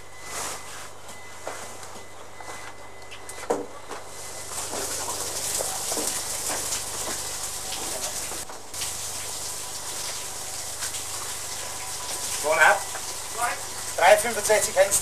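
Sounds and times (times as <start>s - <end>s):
water spraying: 4.6s - 15.0s.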